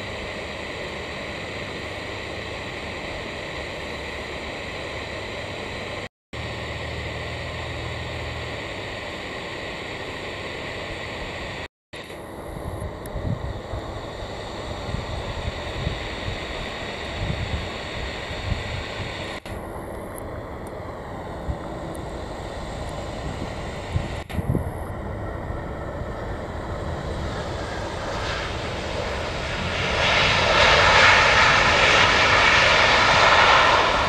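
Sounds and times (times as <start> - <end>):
jet engine noise: 0.0 - 34.0
wind buffeting microphone: 12.6 - 19.3, 22.6 - 34.0.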